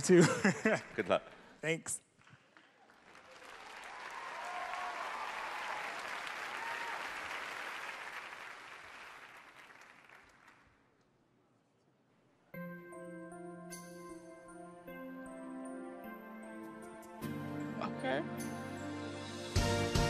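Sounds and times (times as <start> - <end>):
audience applauding: 2.2 - 10.8
people whooping: 3.3 - 7.4.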